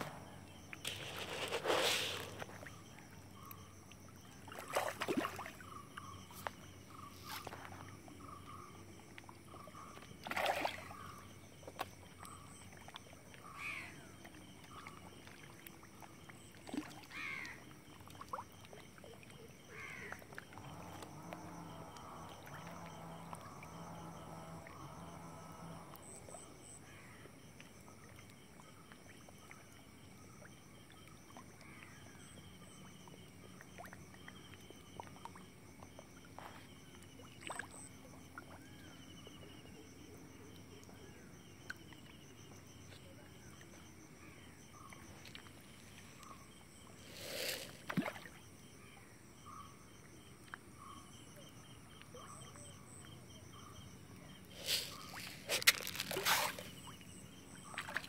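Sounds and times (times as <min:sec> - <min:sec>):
water splashes from fish feeding: 0:04.5 - 0:05.6, 0:10.2 - 0:11.1, 0:47.0 - 0:48.4, 0:54.5 - 0:58.0.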